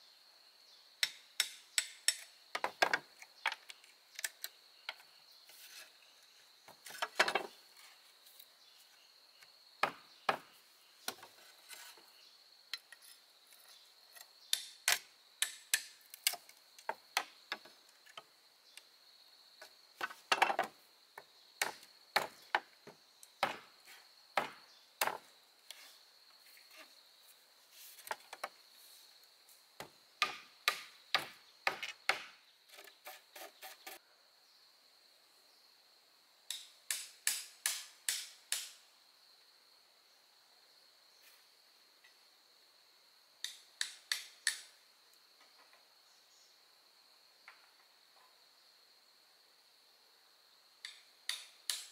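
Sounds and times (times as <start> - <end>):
insects droning: 0.0 - 51.9
wooden knocks and taps: 2.1 - 4.3, 6.7 - 7.5, 19.6 - 23.6.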